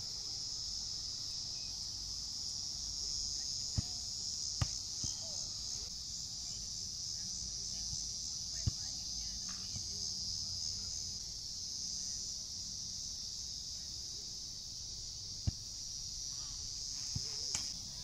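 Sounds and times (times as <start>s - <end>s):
insect chorus: 0.0s - 18.0s
soccer ball kick thump: 3.7s - 5.4s, 8.6s - 8.9s, 15.4s - 15.7s, 17.1s - 17.7s.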